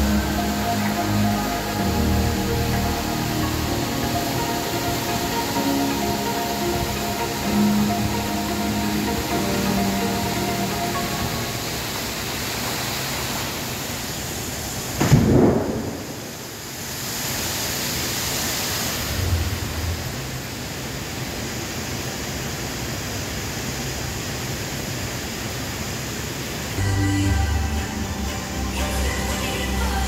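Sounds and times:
loud rumbling boom: 15.0s - 16.4s, 19.1s - 20.4s.

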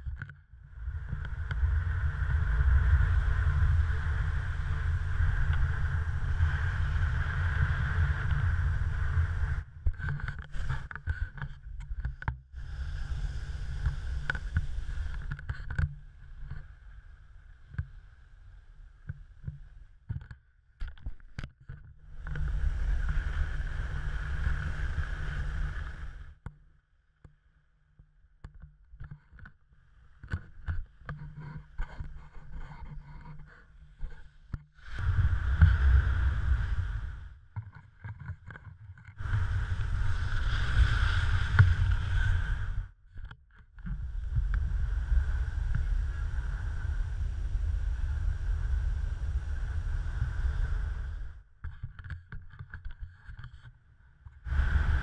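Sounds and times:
wind rushing over camera: 0.0s - 26.4s, 30.2s - 55.0s
skis running on snow: 39.3s - 42.6s.

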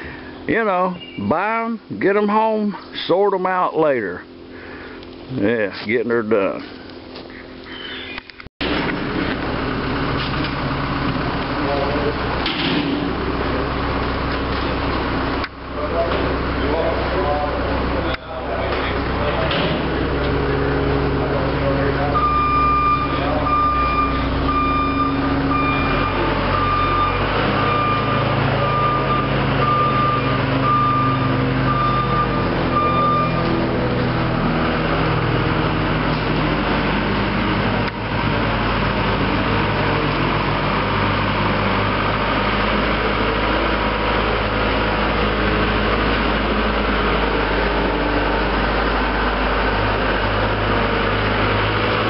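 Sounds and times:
heavy vehicle engine running: 0.0s - 52.0s
reversing alarm beeping: 0.9s - 1.3s, 22.0s - 34.0s.

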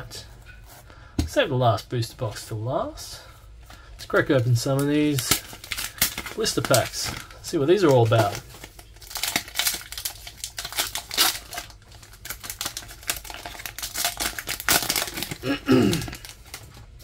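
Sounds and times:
foil pack crinkling: 3.2s - 17.0s
foil pack tearing open: 4.7s - 17.0s.

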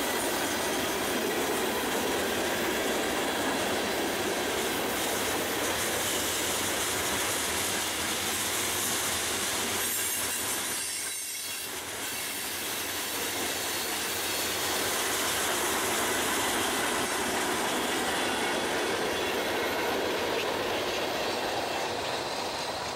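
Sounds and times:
train wheels on rails: 0.0s - 22.9s
wheel squeal: 9.7s - 14.5s.

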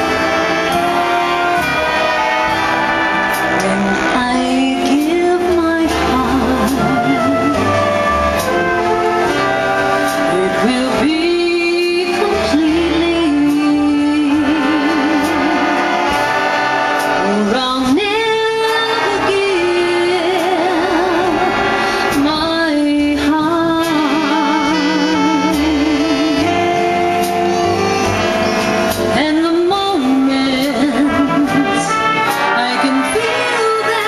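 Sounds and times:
big band playing swing: 0.0s - 34.0s
woman singing with vibrato: 3.2s - 8.2s, 10.2s - 16.1s, 17.2s - 34.0s.

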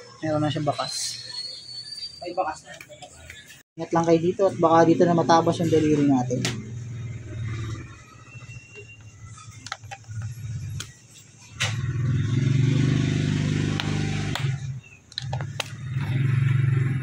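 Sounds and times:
motorcycle engine running: 11.8s - 17.0s.

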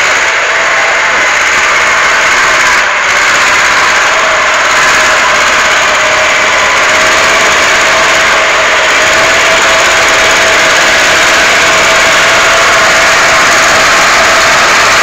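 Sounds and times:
diesel engine running loudly: 0.0s - 15.0s.

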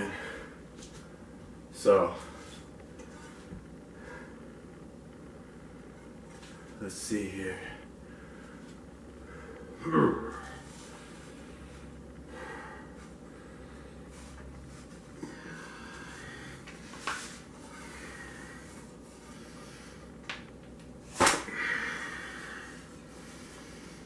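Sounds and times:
heavy strained breathing: 7.6s - 14.4s, 15.0s - 17.0s, 17.6s - 20.2s, 21.5s - 24.0s.

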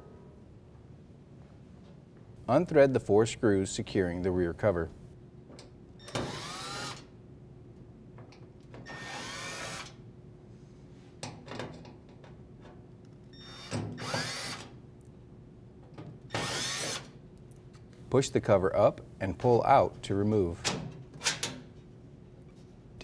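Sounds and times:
cordless drill motor running: 6.1s - 7.0s, 8.9s - 9.9s, 13.6s - 14.6s, 16.4s - 17.0s.

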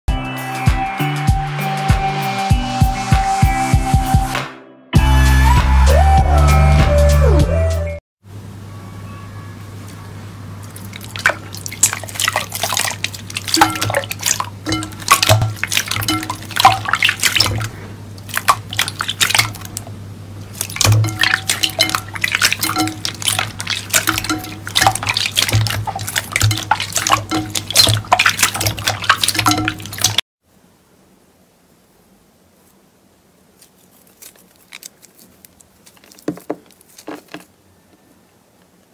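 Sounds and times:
hands splashing liquid in bowl: 10.6s - 19.9s, 20.5s - 30.2s.

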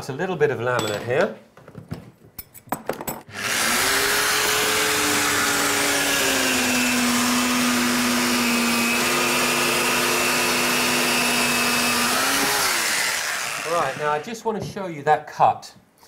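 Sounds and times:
circular saw cutting laminate: 3.3s - 14.3s.

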